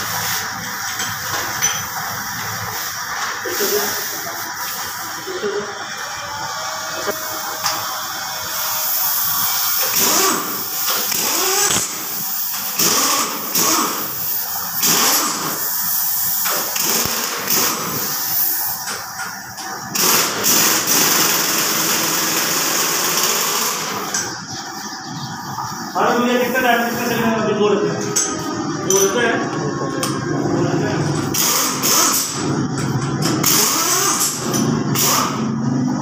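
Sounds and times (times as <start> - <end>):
pneumatic impact wrench rattling: 8.8 - 24.4, 31.2 - 35.6.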